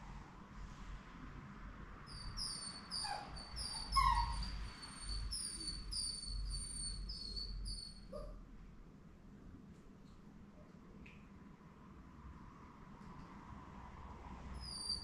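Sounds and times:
puppy whining and squealing: 2.1 - 8.4, 14.6 - 15.0
puppy yelp: 2.1 - 8.4, 14.6 - 15.0.

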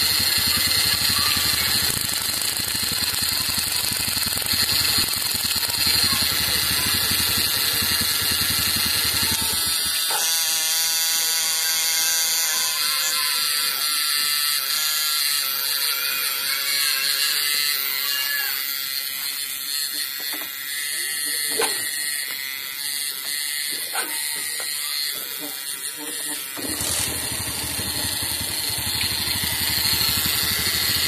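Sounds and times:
motorcycle engine running: 0.0 - 10.0, 26.6 - 31.0.

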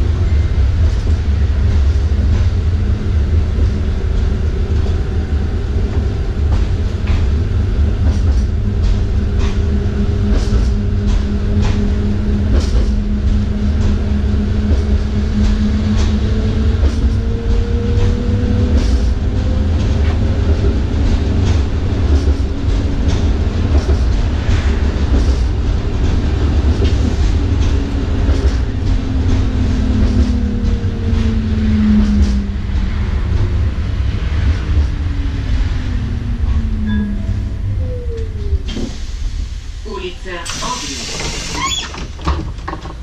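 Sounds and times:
tram wheels rumbling on rails: 0.0 - 43.0.

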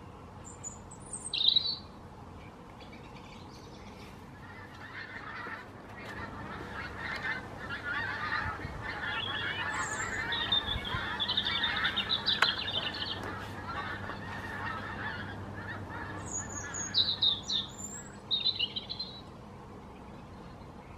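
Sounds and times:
geese honking in flight: 4.2 - 19.2.

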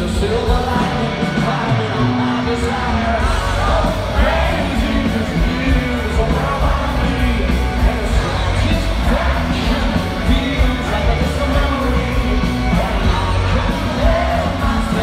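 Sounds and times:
distorted guitars: 0.0 - 15.0
heavy drums: 0.0 - 15.0
rock band playing live: 0.0 - 15.0.

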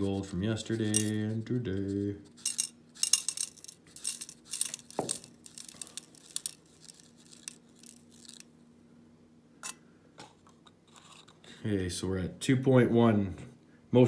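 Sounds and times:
gold nuggets clinking in tray: 2.5 - 8.4.

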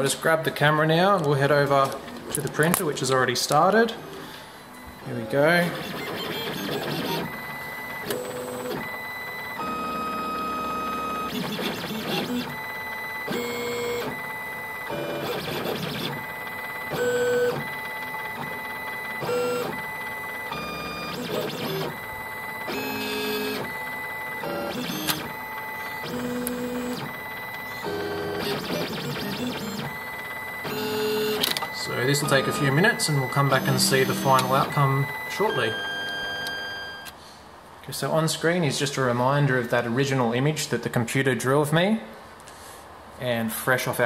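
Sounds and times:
stepper motors whining: 4.8 - 37.1.

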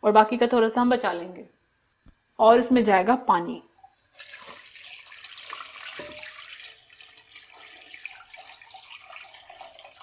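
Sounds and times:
water pouring into a wok: 4.1 - 10.0.

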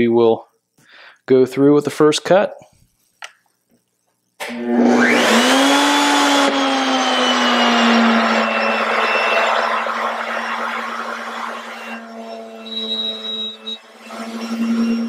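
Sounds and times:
router motor whine: 4.4 - 15.0.

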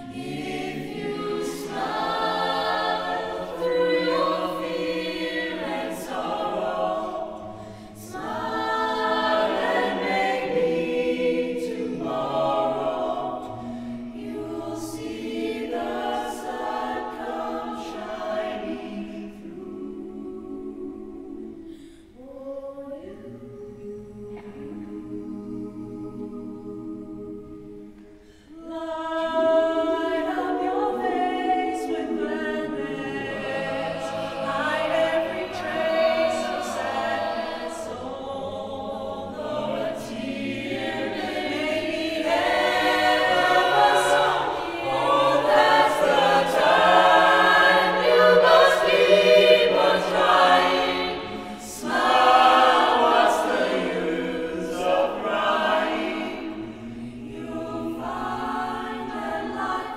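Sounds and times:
a cappella group singing: 0.0 - 59.9.

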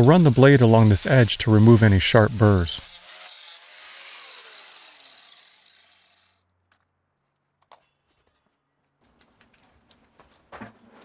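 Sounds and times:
angle grinder winding down: 0.0 - 6.4.

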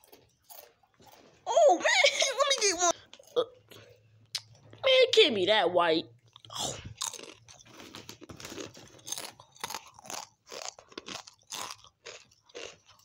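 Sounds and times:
person chewing crunchy chips: 0.0 - 1.7, 6.3 - 13.0.

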